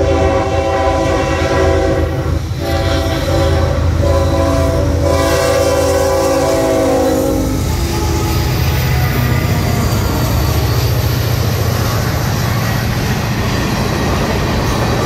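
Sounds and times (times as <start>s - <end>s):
locomotive air horn blasts: 0.0s - 9.9s
locomotive engine and wheels rumbling: 0.0s - 15.0s.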